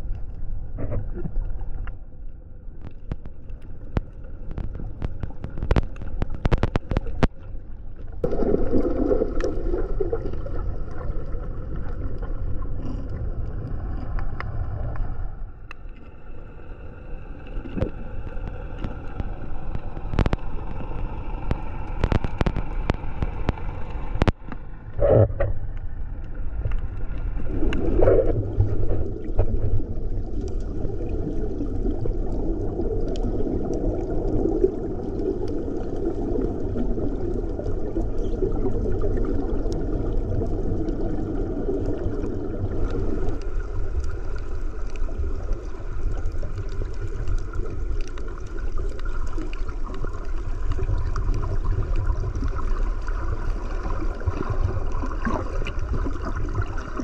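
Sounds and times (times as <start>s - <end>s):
muffled underwater rushing and gurgling: 0.0s - 57.0s
faint clicks: 2.8s - 8.1s, 14.0s - 16.2s, 17.4s - 30.8s.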